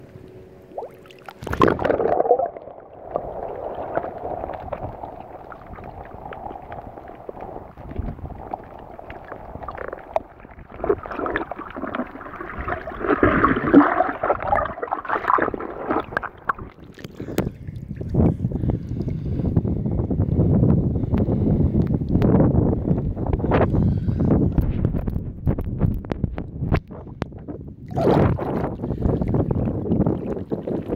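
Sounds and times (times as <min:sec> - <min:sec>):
muffled water sloshing and gurgling: 0:00.0 - 0:30.9
loud splash: 0:00.7 - 0:06.1, 0:09.6 - 0:16.9
small crackling clicks: 0:24.6 - 0:27.4.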